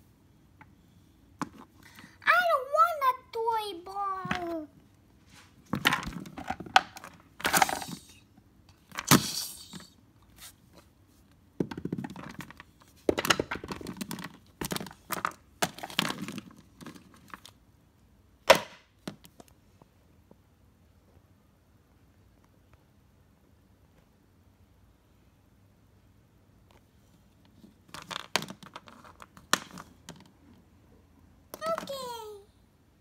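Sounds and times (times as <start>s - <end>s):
handling rustling and scraping: 5.2s - 17.5s, 26.7s - 30.6s.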